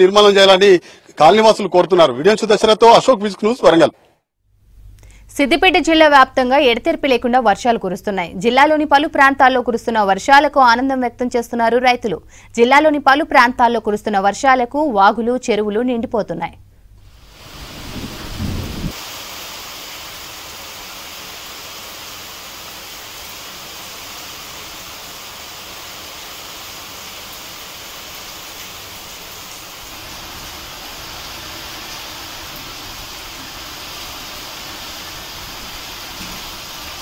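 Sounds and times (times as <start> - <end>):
rain falling: 17.1 - 37.0
low thump: 18.0 - 18.9.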